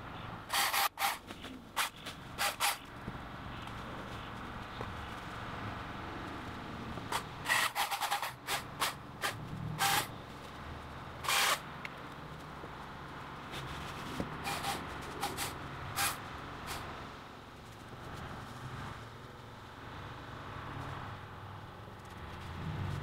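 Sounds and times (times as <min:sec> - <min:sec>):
electric chainsaw cutting branches: 0:00.5 - 0:02.9, 0:07.1 - 0:10.1, 0:11.2 - 0:11.7, 0:14.4 - 0:16.8.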